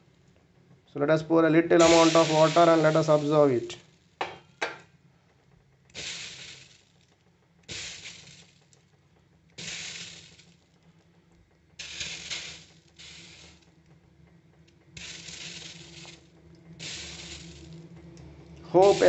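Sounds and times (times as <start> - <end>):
water sizzling on a hot pan: 1.8 - 4.3, 5.9 - 8.8, 9.6 - 10.8, 11.7 - 13.7, 15.0 - 17.8, 18.8 - 19.0.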